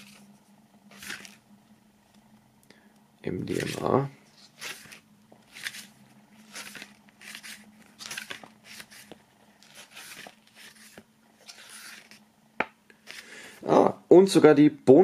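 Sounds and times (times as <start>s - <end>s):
paper pages turning: 0.0s - 1.4s, 3.4s - 12.2s, 13.0s - 13.3s
faint low hum: 0.0s - 15.0s.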